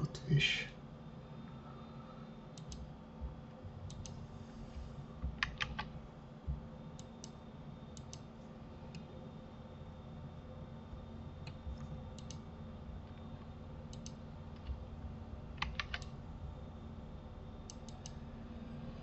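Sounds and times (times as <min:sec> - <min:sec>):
low steady hum: 0:00.0 - 0:19.0
computer keyboard and mouse clicks: 0:02.6 - 0:02.9, 0:05.3 - 0:05.9, 0:07.0 - 0:08.3, 0:11.4 - 0:13.2, 0:13.9 - 0:14.8, 0:15.5 - 0:16.2, 0:17.6 - 0:18.2.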